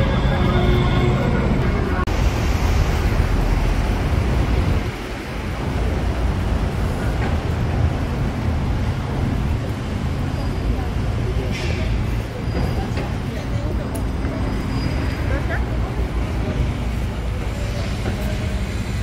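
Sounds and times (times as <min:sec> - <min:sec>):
traffic noise: 0:00.0 - 0:19.0
wind rumble on microphone: 0:01.4 - 0:10.1.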